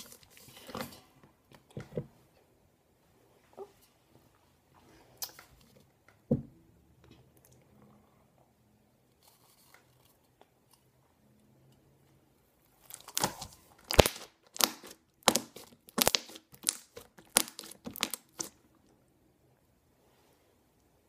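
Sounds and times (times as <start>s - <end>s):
slime popping and squelching: 12.8s - 18.6s.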